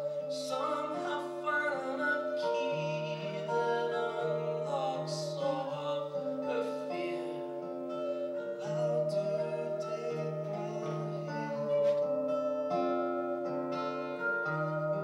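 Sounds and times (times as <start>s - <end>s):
person singing long note: 0.0s - 12.6s
acoustic guitars strumming: 0.0s - 15.0s.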